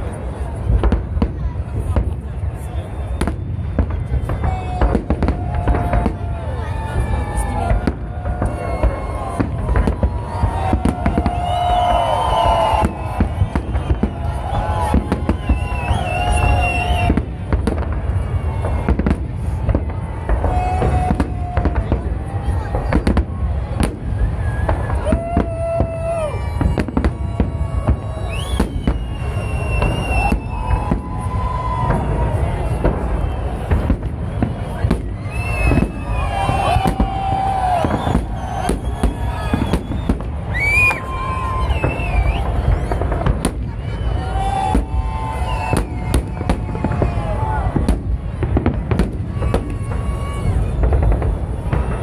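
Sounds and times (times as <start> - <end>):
fireworks bursting: 0.0 - 52.0.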